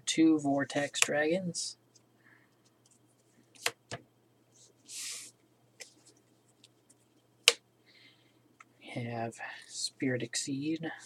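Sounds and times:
faint steady hum: 0.0s - 11.0s
cards sliding rustle: 4.6s - 6.8s.

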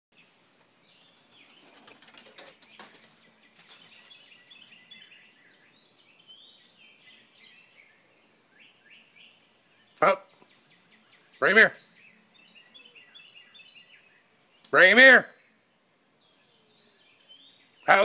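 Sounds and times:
bird chirps: 0.9s - 14.8s.

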